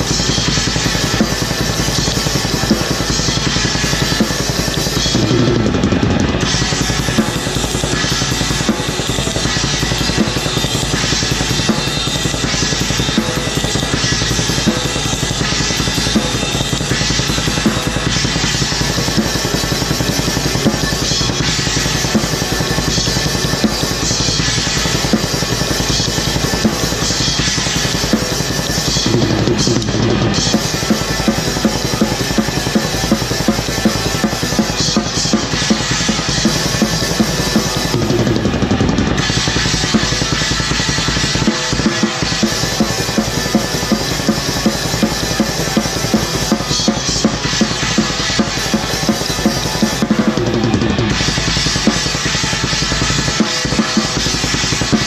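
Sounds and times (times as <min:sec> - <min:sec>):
fast metal drumming: 0:00.0 - 0:55.0.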